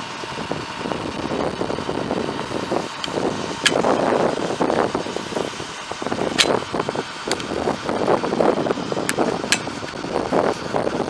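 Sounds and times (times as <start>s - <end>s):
diesel truck engine running: 0.0s - 11.0s
sharp clicks or knocks: 6.3s - 6.6s, 9.1s - 9.7s.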